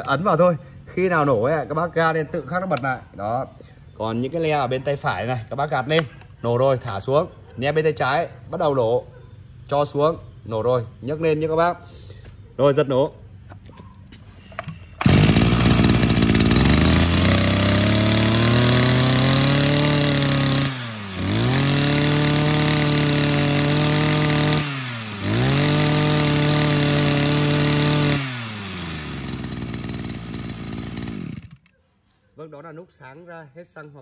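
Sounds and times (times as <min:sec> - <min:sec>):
brush cutter engine revving: 0:14.6 - 0:31.7.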